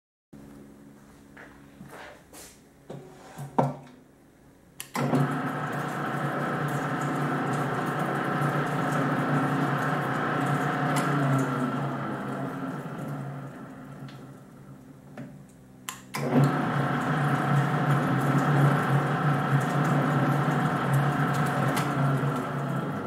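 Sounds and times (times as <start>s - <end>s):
mixer motor running: 4.8s - 14.8s, 15.9s - 23.0s.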